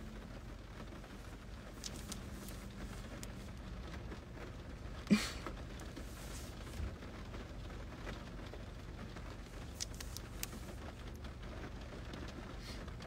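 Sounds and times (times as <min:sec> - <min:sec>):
faint clicks: 0:09.6 - 0:11.3.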